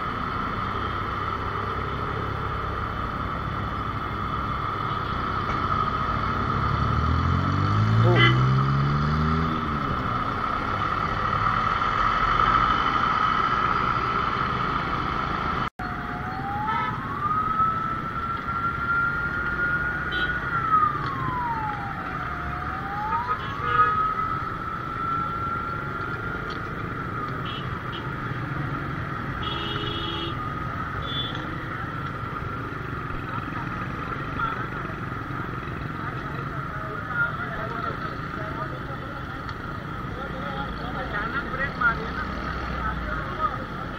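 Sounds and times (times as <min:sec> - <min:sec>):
motorcycle and city traffic: 0:00.0 - 0:43.9
ambulance siren wailing: 0:15.8 - 0:43.8.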